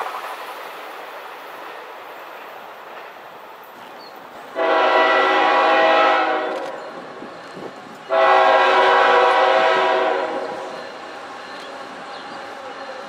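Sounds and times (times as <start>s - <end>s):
locomotive air horn blasts: 4.5s - 6.8s, 8.1s - 10.8s.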